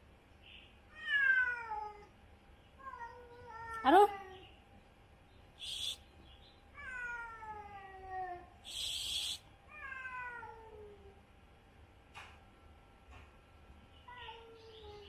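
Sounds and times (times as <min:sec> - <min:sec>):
cats yowling: 0:00.9 - 0:02.1, 0:06.8 - 0:11.2
cat hissing: 0:05.6 - 0:06.0, 0:08.6 - 0:09.4.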